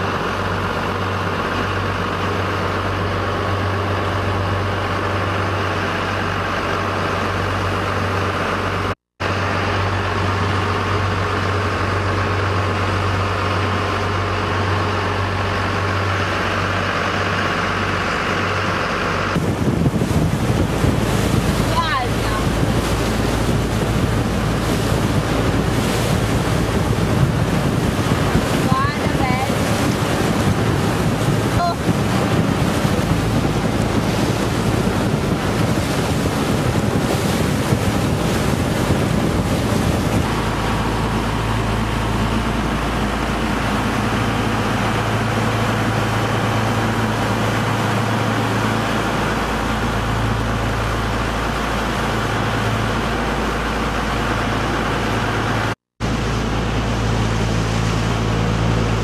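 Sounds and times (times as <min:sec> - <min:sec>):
boat engine droning: 0:00.0 - 0:59.0
water rushing past hull: 0:00.0 - 0:59.0
wind buffeting microphone: 0:00.1 - 0:59.0.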